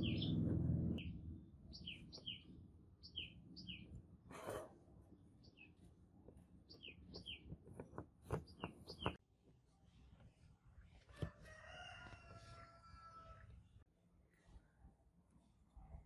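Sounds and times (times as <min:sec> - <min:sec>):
rooster crowing faintly: 0:11.0 - 0:13.6.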